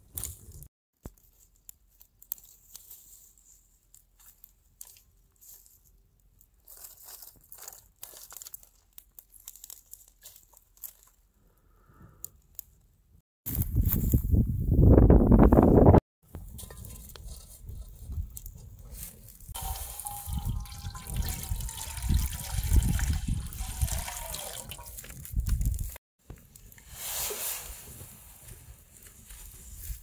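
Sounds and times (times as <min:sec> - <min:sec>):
water splashing and trickling: 0:19.5 - 0:26.0.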